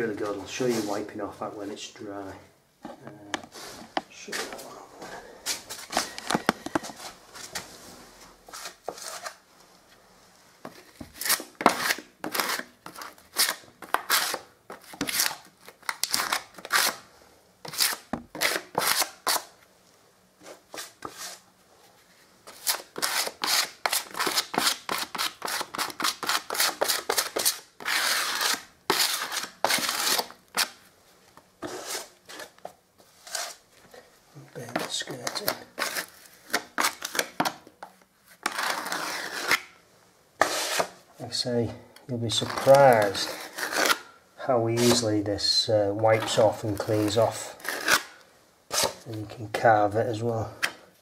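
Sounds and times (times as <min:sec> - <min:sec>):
filling blade scraping plaster wall: 0:22.5 - 0:30.3, 0:38.4 - 0:39.7, 0:40.4 - 0:40.9, 0:42.3 - 0:44.0.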